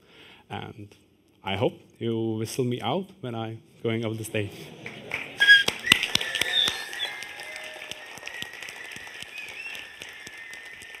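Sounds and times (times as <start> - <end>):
audience clapping: 4.5 - 11.0
shrill whistle tones: 5.4 - 11.0.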